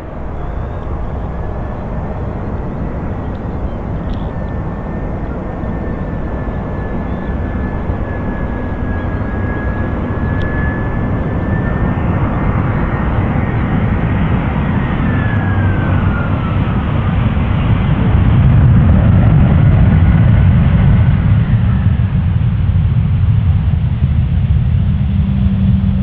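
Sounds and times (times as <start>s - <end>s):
high engine whine: 0.0s - 26.0s
jet engine rumble: 0.0s - 26.0s.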